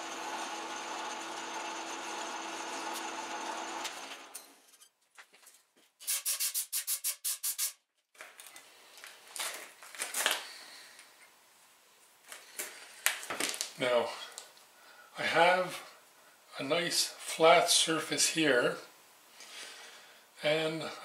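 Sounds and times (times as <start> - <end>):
file rubbing spinning metal: 0.0 - 4.3
metal lathe running: 0.0 - 4.4
sharp scraping strokes: 6.0 - 7.8.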